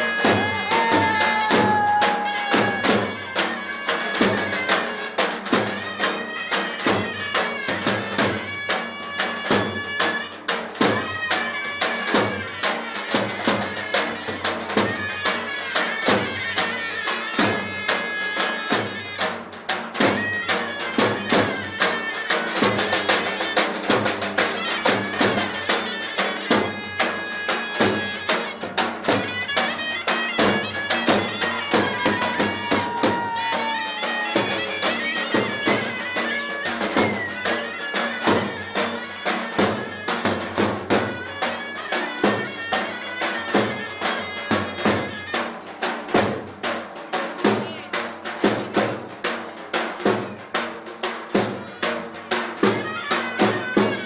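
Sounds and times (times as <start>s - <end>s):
fast drum beat: 0.0s - 6.1s, 18.6s - 54.0s
reedy wind instrument melody: 0.0s - 48.0s, 49.2s - 54.0s.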